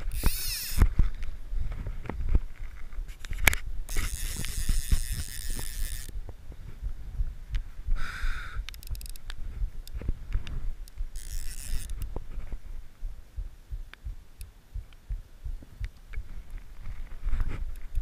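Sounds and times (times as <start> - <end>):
fly reel rattling buzz: 0.0 - 0.9, 3.9 - 6.1, 11.2 - 12.0.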